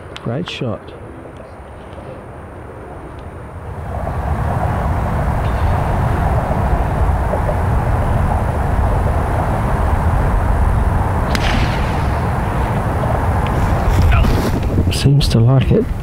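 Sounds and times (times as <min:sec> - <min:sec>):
wind rumble on microphone: 0:01.4 - 0:16.0
golf iron striking ball: 0:11.3 - 0:13.6.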